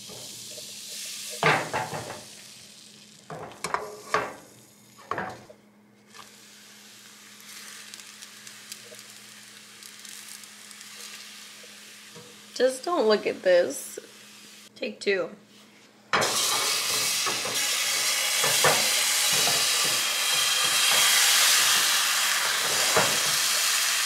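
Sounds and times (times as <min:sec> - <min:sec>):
batter sizzling in frying pan: 0:00.0 - 0:14.7, 0:16.2 - 0:24.0
spatula scraping and knocking pan: 0:16.2 - 0:23.5.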